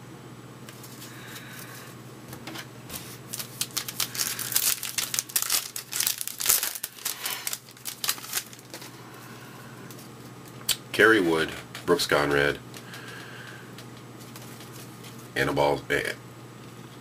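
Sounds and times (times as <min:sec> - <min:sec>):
plastic foil wrapper crinkling: 0:02.9 - 0:09.0, 0:12.7 - 0:15.3.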